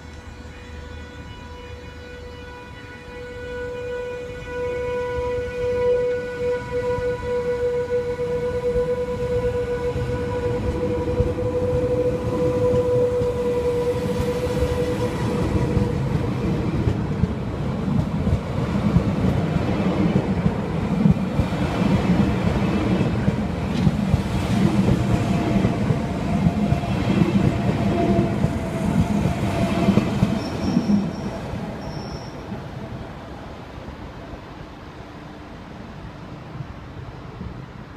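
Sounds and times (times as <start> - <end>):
electric train whine: 0.0 - 37.9
train wheels rumbling on rails: 6.0 - 33.8
high wheel squeals: 30.4 - 32.5.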